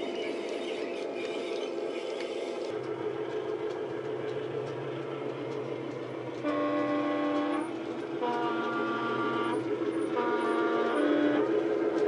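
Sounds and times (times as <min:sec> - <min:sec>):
steady engine hum: 0:00.0 - 0:12.0
two-tone train horn: 0:06.3 - 0:11.6.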